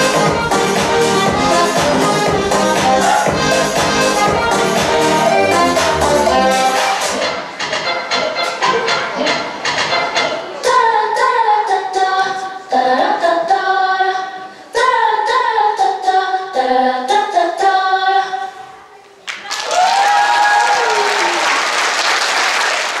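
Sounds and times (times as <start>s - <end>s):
song with sung vocals: 0.0s - 18.8s
audience applause: 19.3s - 23.0s
audience cheer: 19.4s - 23.0s.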